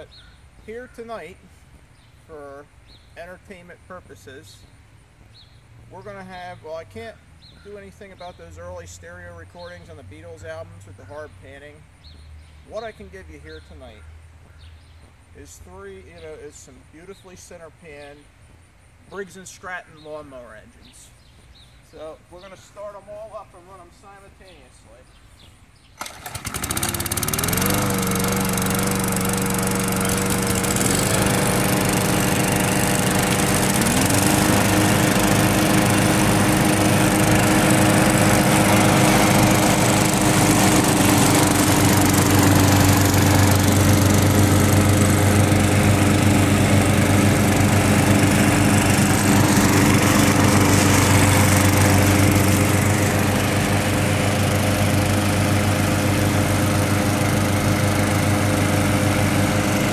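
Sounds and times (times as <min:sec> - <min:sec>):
push mower engines running: 0:00.0 - 0:14.0, 0:26.0 - 0:59.9.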